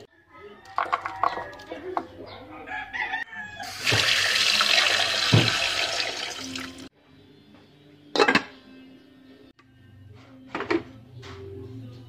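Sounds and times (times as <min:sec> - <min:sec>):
tap water running into metal pot: 0:03.6 - 0:06.9.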